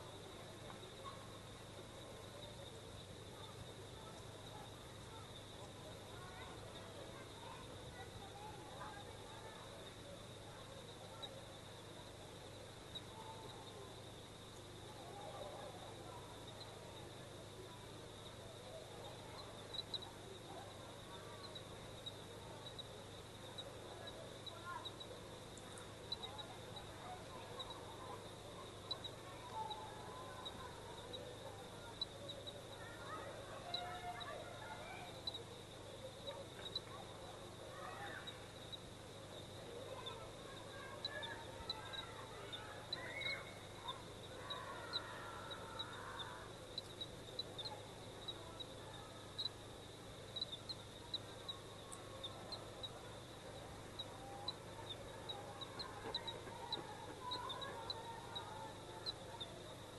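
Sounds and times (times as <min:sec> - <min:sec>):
steady hiss: 0:00.0 - 0:59.9
faint bird-like call: 0:39.6 - 0:49.6, 0:53.9 - 0:59.6.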